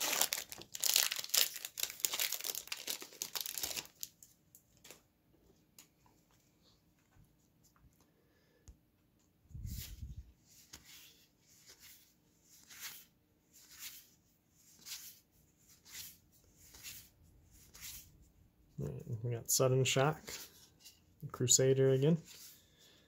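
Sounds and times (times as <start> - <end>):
cards sliding papery swish: 9.6 - 14.1, 14.7 - 18.1.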